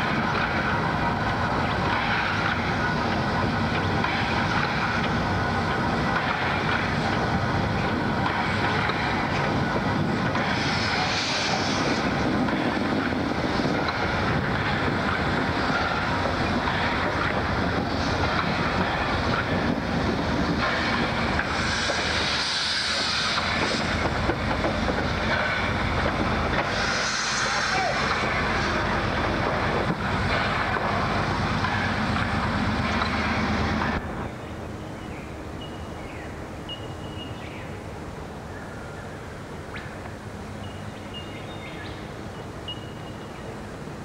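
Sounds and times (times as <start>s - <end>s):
steam hiss: 0.0s - 34.1s
steam locomotives rumbling past: 0.0s - 44.0s.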